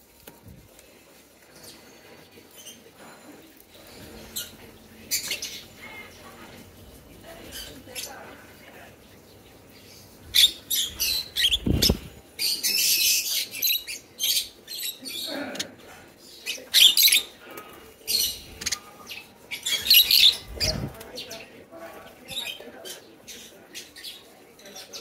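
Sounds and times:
birds chirping and squawking: 0:01.4 - 0:25.0
wings flapping: 0:11.4 - 0:12.3.

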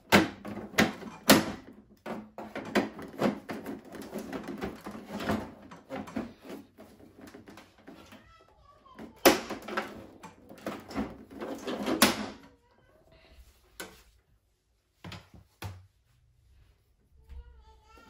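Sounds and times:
plastic panel clattering and snapping: 0:00.0 - 0:08.2, 0:09.0 - 0:12.5.

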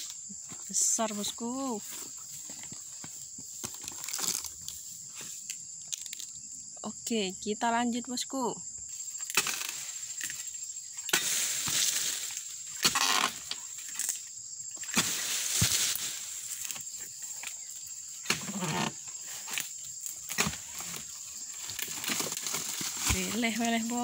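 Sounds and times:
palm fronds rustling: 0:00.0 - 0:06.3, 0:08.9 - 0:24.0
blade chopping palm fronds: 0:09.3 - 0:10.4, 0:11.1 - 0:14.2, 0:14.8 - 0:16.9, 0:18.2 - 0:24.0.

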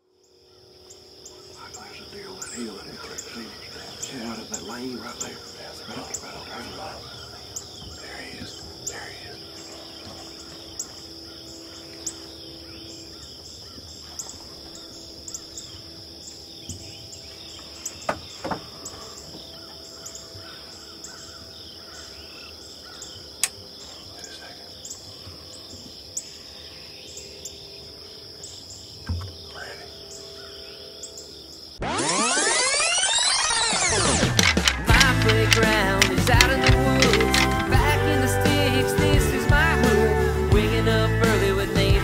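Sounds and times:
high-pitched insect drone: 0:00.0 - 0:25.0, 0:26.2 - 0:37.8
insect chirps: 0:00.0 - 0:38.0
sharp clicks: 0:31.8 - 0:37.9.

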